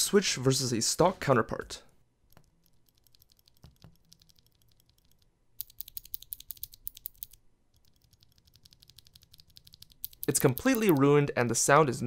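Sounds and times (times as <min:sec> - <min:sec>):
mechanical keyboard switches clicking: 0:03.0 - 0:11.1.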